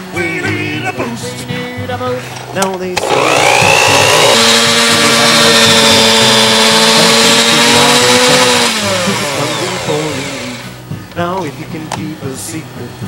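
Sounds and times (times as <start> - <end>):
electric hand mixer whirring: 3.0 - 10.8.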